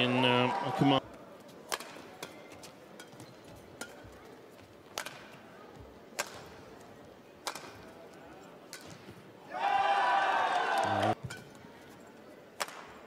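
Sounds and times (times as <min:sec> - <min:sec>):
racket striking shuttlecock: 0:01.7 - 0:04.1, 0:04.9 - 0:05.3, 0:07.4 - 0:07.8.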